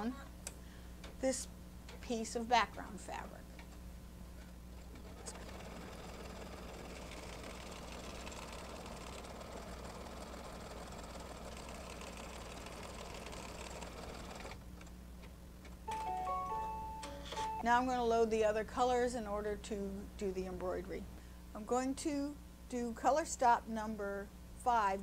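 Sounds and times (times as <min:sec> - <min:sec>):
embroidery machine stitching: 0:04.8 - 0:14.6.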